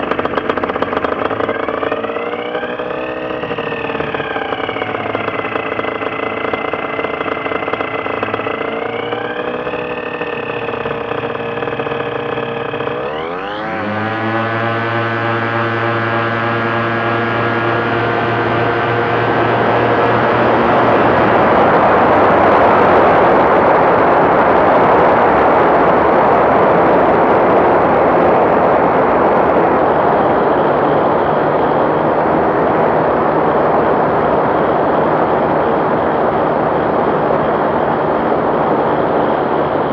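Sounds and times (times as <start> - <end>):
small aircraft engine: 0.0 - 39.9.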